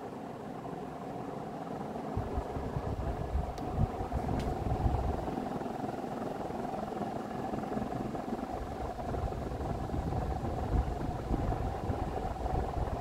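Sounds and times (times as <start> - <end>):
ceiling fan humming: 0.0 - 13.0
low rumbling: 2.1 - 5.3.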